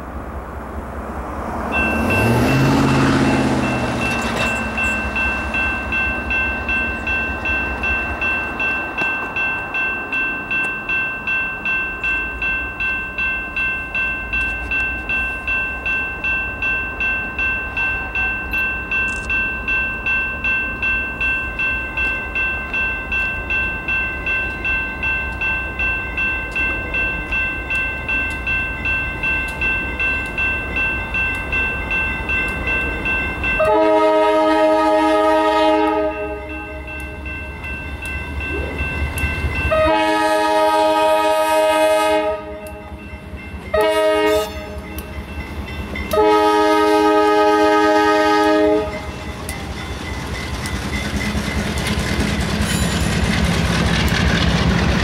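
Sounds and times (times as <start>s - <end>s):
electronic crossing bell dinging: 1.7s - 34.4s, 36.0s - 40.4s.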